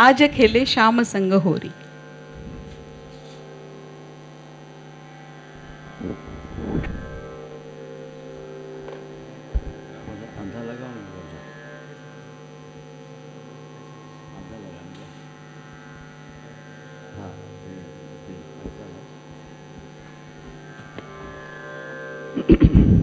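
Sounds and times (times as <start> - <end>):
harmonium drone: 0.0 - 23.0
steady hum: 0.0 - 23.0
tabla strokes: 1.8 - 12.3.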